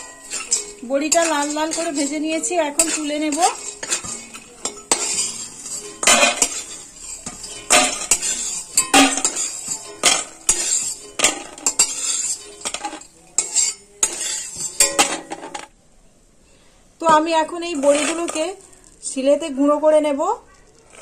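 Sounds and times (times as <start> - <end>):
metal spatula scraping a pan: 0.0 - 15.7, 17.1 - 19.0
pan ringing: 0.0 - 15.7.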